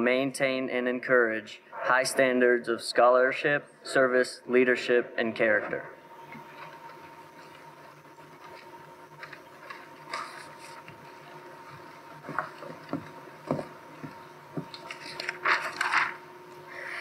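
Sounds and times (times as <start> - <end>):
steady hum: 0.0 - 17.0
folding chairs knocking and clicking: 12.3 - 14.8.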